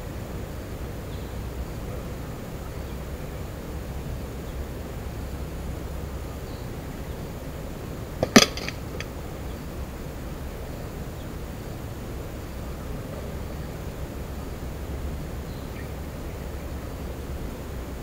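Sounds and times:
hanging target rattling: 8.2s - 9.0s.

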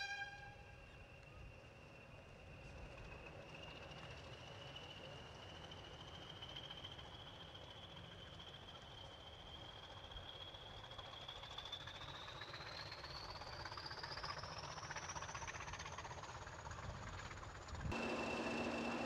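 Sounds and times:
whistle rising in pitch: 0.0s - 2.8s
diesel locomotive engine: 0.0s - 19.0s.

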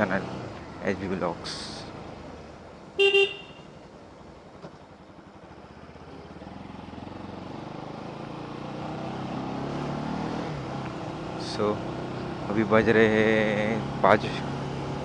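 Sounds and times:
motorcycle engine: 0.0s - 15.0s
road noise: 0.0s - 15.0s
horn beep: 3.0s - 3.7s.

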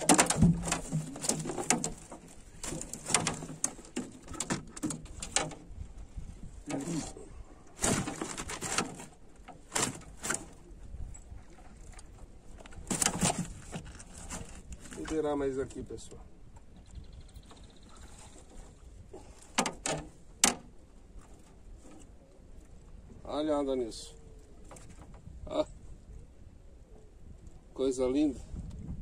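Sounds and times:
fish flapping in metal boat: 0.0s - 5.8s, 7.8s - 10.6s, 11.8s - 15.2s, 18.3s - 22.0s.

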